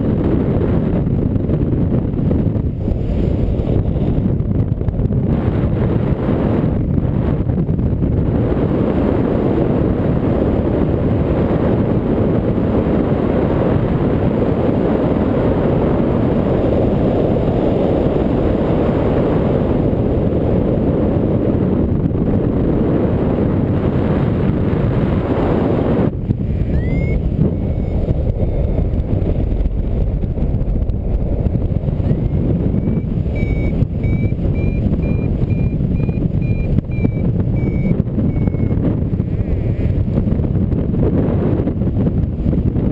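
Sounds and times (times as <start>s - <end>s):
wind buffeting microphone: 0.0s - 42.9s
variometer beeping: 26.7s - 28.2s, 32.0s - 39.8s.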